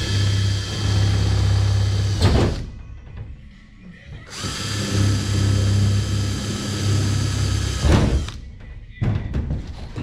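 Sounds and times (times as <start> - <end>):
cordless drill boring through metal: 0.0 - 2.2, 4.3 - 8.4
drill knocking on metal panel: 4.3 - 8.3.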